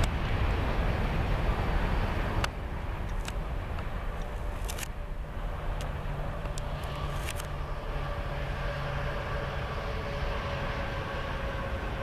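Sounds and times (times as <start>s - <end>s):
faint whine: 0.0s - 12.0s
freight train cars rumbling: 0.0s - 12.0s
sharp clicks: 2.4s - 5.0s.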